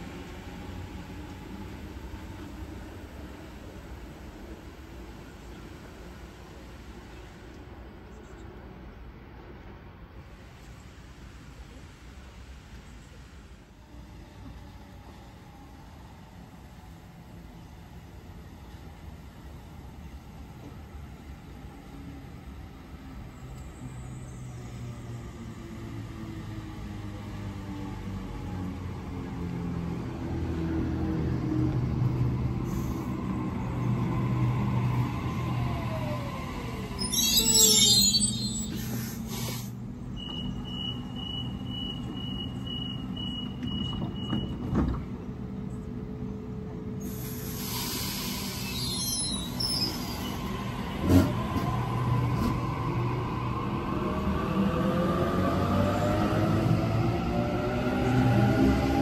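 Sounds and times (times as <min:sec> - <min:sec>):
electric train hum and rumble: 0:00.0 - 0:59.0
hiss: 0:32.6 - 0:33.2, 0:38.5 - 0:39.8, 0:47.0 - 0:50.4
train brakes whining: 0:36.8 - 0:44.6, 0:47.0 - 0:51.4
train clunk: 0:40.2 - 0:45.2.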